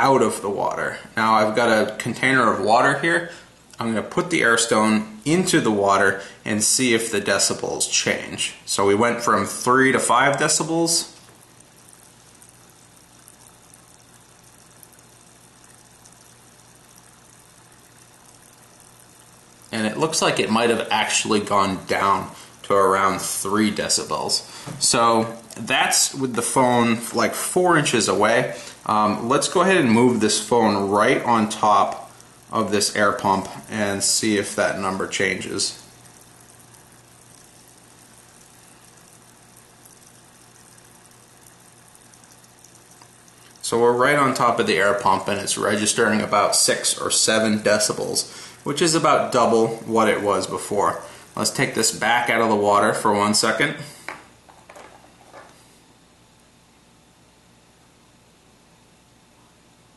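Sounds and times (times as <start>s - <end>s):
air stone bubbling in water: 9.4s - 24.9s, 25.6s - 53.1s.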